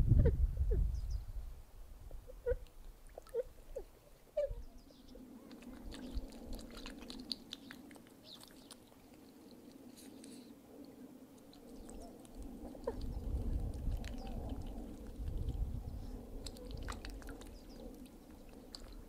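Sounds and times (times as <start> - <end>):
swan splashing in water: 5.4 - 9.9, 11.4 - 19.0.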